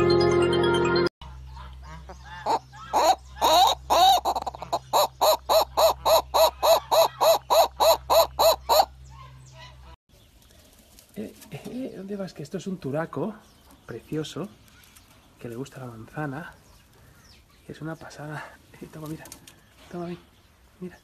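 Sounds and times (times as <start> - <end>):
jingle music: 0.0 - 1.1
bird calling loud notes: 1.2 - 10.0.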